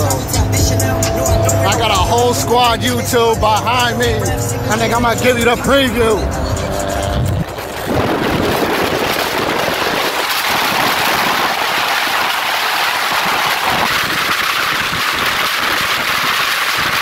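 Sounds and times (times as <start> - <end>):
tyre noise at highway speed: 0.0 - 17.0
wind rush: 4.2 - 17.0.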